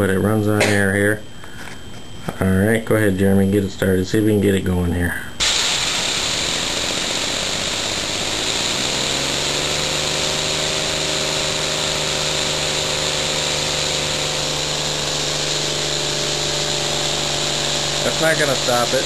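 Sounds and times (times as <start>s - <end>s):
compressed air hissing: 5.4s - 19.0s
small steam engine running: 5.4s - 19.0s.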